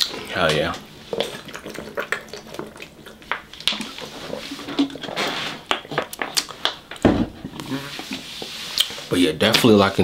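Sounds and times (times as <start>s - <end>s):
plastic bottle crackling: 0.5s - 8.2s.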